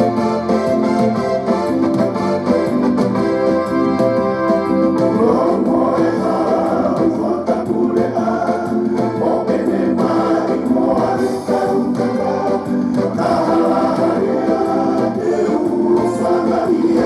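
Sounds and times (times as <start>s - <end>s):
instrumental accompaniment: 0.0s - 17.0s
voices singing in harmony: 4.8s - 17.0s.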